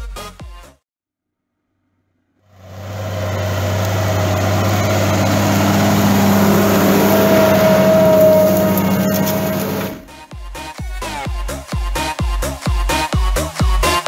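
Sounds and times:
high whine: 0:02.6 - 0:10.2
tractor diesel engine running: 0:02.6 - 0:10.2.

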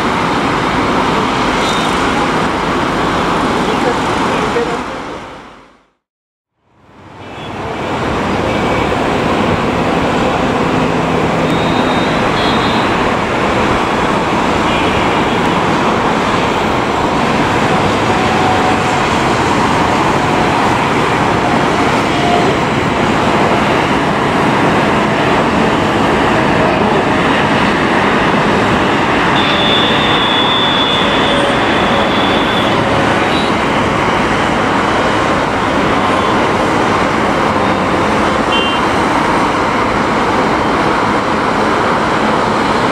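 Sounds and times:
jet engines at takeoff thrust: 0:08.0 - 0:42.9.

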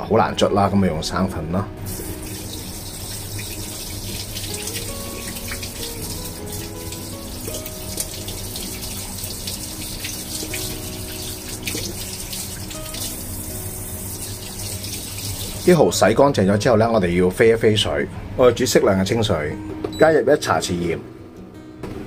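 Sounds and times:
background music: 0:00.0 - 0:22.0
tap water running: 0:01.8 - 0:16.3.

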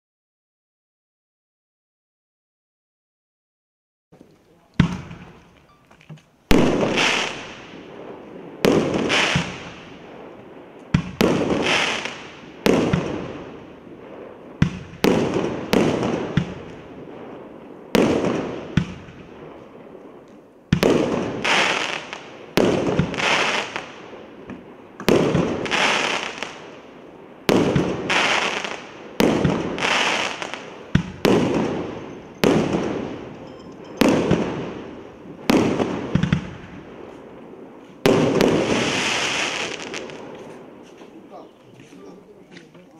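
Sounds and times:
firework cake bangs: 0:04.8 - 0:05.5, 0:08.6 - 0:09.8, 0:10.9 - 0:13.6, 0:14.2 - 0:19.3, 0:27.4 - 0:33.3, 0:34.0 - 0:36.8.

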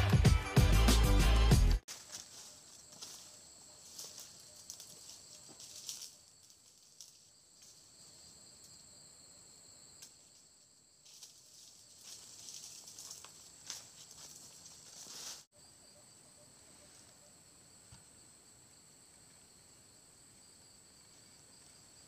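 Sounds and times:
footsteps through leafy undergrowth: 0:01.9 - 0:07.9, 0:11.0 - 0:15.5
insects droning: 0:01.9 - 0:22.0.

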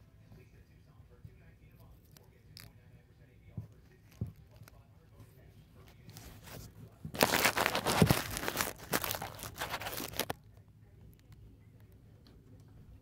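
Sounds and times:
crinkling and rustling: 0:03.7 - 0:04.8, 0:05.8 - 0:10.4.

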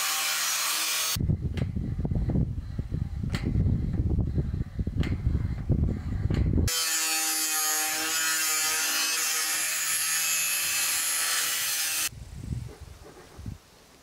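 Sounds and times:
angle grinder cutting steel: 0:00.0 - 0:01.2, 0:06.7 - 0:12.1.

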